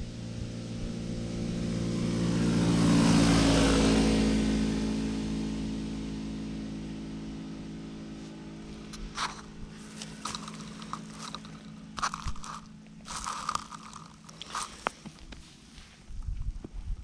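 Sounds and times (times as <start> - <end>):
distant engine hum: 0.0 - 15.9
hands rummaging in dry leaves: 8.8 - 15.8.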